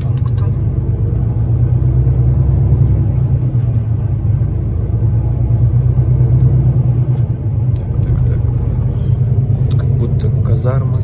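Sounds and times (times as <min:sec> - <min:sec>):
diesel truck engine drone: 0:00.0 - 0:11.0
road rumble: 0:00.0 - 0:11.0.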